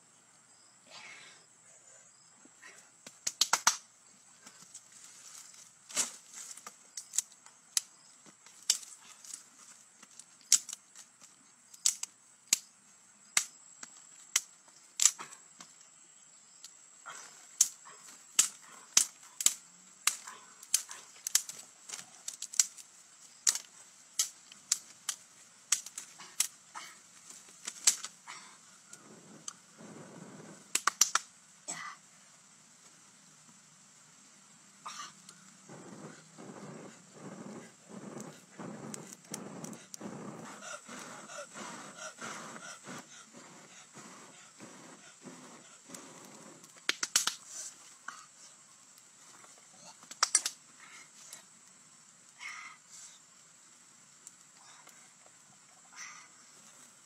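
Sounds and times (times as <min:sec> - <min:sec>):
sticks snapping: 0:03.0 - 0:03.9, 0:05.9 - 0:09.4, 0:10.0 - 0:12.7, 0:13.4 - 0:15.7, 0:17.6 - 0:28.2, 0:30.7 - 0:31.3, 0:45.9 - 0:47.7, 0:50.0 - 0:50.6.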